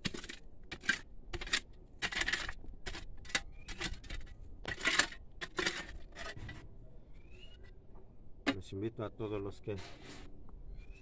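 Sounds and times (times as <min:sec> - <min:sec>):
metal tool scraping stony earth: 0:00.0 - 0:06.7, 0:09.6 - 0:10.4.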